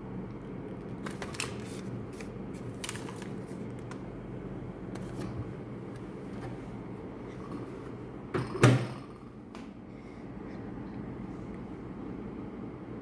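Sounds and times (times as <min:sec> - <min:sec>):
steady low hum: 0:00.0 - 0:13.0
paper bag crinkling: 0:01.0 - 0:03.8.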